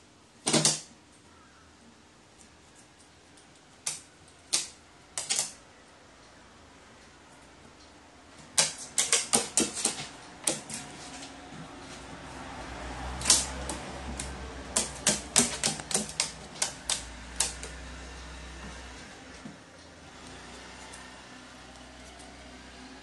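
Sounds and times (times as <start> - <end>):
crow pecking on hard surface: 8.5 - 11.2, 13.0 - 17.8.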